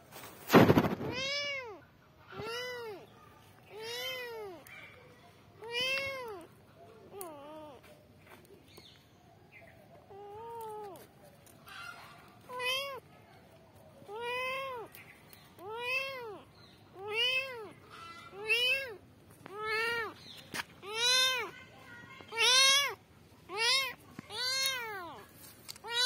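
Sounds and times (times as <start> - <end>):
kitten meowing: 5.6 - 6.5, 7.2 - 7.8, 12.5 - 13.0, 14.1 - 15.0, 15.6 - 20.2, 20.8 - 21.5, 22.3 - 25.2, 25.8 - 26.0.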